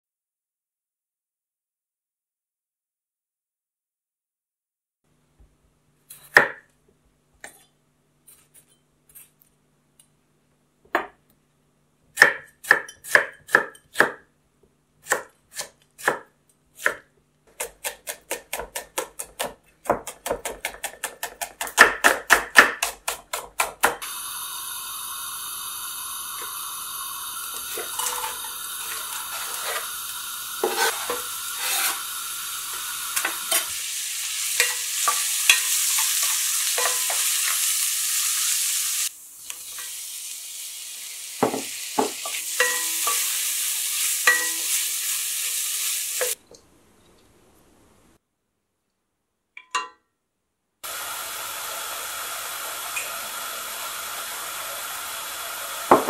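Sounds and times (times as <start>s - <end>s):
knife chopping on wooden board: 15.0s - 24.0s
food sizzling in a pan: 24.0s - 46.4s, 50.8s - 56.0s
wooden spatula scraping a pan: 27.7s - 30.0s, 30.6s - 32.1s.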